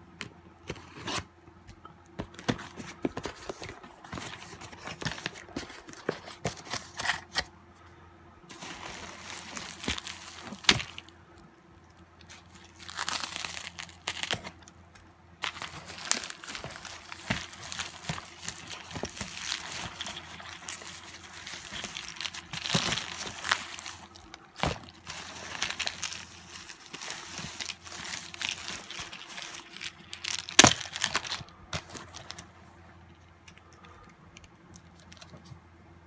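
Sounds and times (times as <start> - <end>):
bubble wrap crinkling: 8.5 - 11.4, 12.0 - 32.6.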